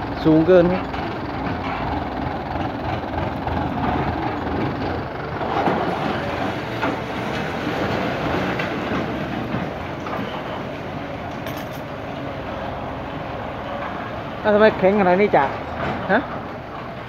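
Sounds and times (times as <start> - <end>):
tractor diesel engine running: 0.0 - 17.0
disc plough clanking rattle: 0.2 - 12.0.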